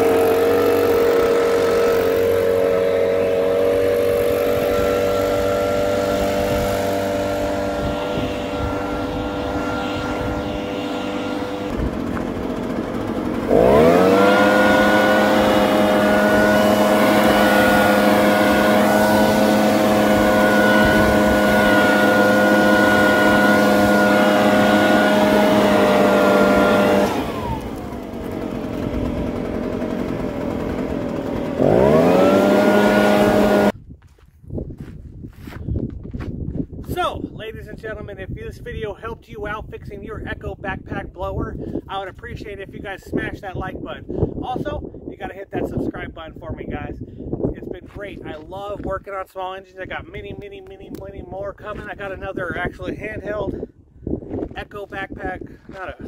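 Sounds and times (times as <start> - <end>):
leaf blower engine revving: 0.0 - 33.8.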